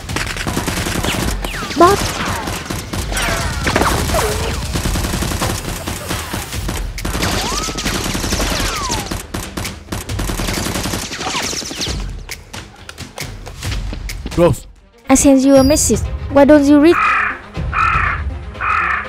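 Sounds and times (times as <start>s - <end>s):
rapid machine-gun fire: 0.0s - 12.1s.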